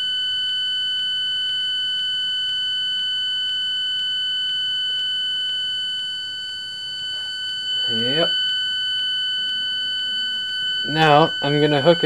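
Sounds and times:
high-pitched synthesizer buzzing tone: 6.1 - 12.0.

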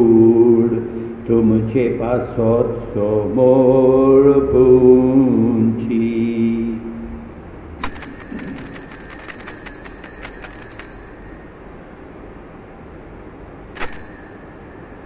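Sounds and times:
altar bells ringing: 7.8 - 12.4, 13.8 - 15.0.

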